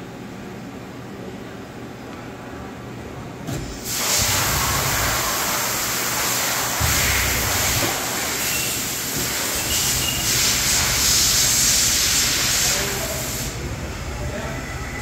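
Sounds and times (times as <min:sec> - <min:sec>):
machine loud steady hiss: 0:03.6 - 0:15.0.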